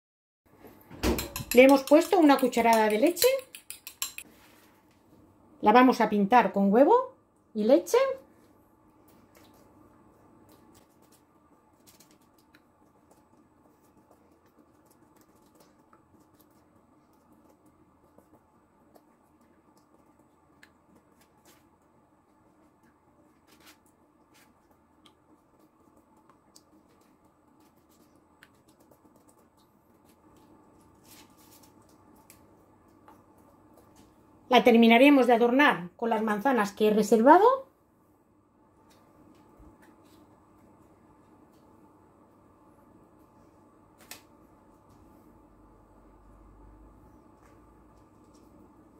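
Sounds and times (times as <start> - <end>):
brush clicking on glass bowl: 1.2 - 4.3
pastry brush tapping and brushing: 1.2 - 4.4, 9.0 - 34.2.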